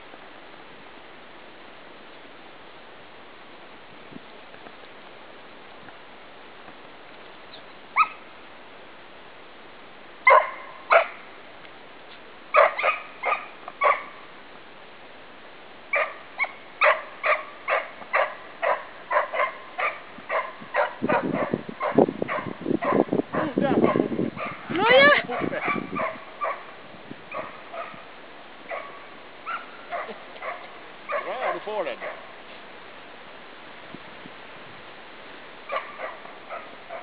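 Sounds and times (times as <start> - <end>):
dog yelp: 8.0 - 8.2, 10.3 - 11.2, 12.6 - 14.1, 15.9 - 26.7, 27.3 - 28.0, 28.7 - 32.2, 35.7 - 37.0.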